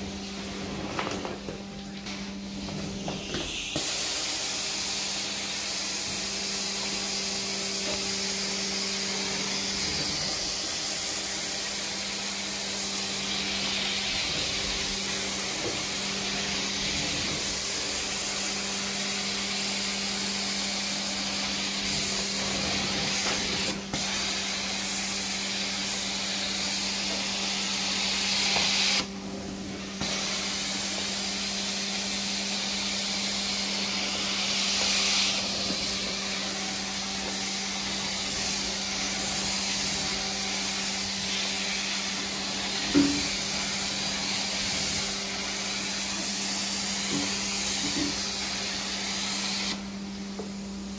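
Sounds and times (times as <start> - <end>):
carpet extraction wand suction hiss: 2.1 - 50.9.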